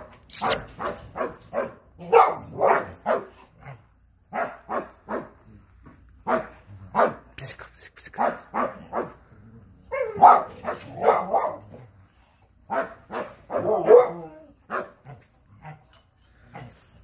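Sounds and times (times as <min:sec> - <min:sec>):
dog barking: 0:00.0 - 0:05.4, 0:06.2 - 0:07.3, 0:08.2 - 0:09.2, 0:09.9 - 0:11.9, 0:12.7 - 0:15.8.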